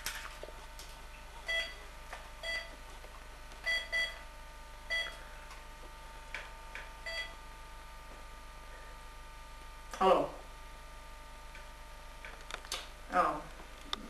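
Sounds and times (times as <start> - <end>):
phone keypad beeps: 3.7 - 4.2, 4.9 - 5.2.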